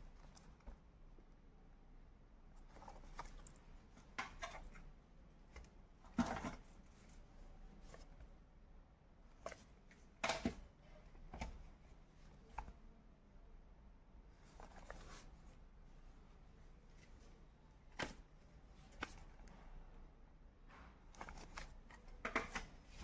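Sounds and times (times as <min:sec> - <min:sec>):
plastic cases clicking and crinkling: 0:02.6 - 0:06.8, 0:09.4 - 0:11.7, 0:21.1 - 0:23.0.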